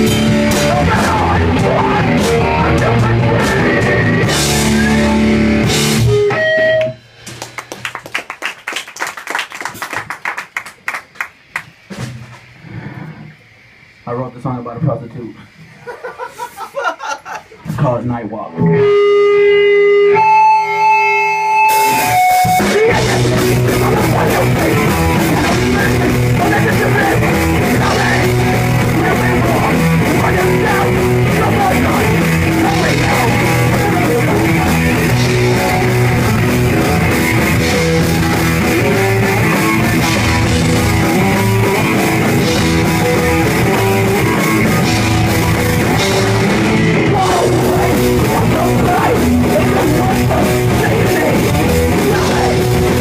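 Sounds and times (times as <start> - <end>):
rock band playing: 0.0 - 8.3, 18.5 - 53.0.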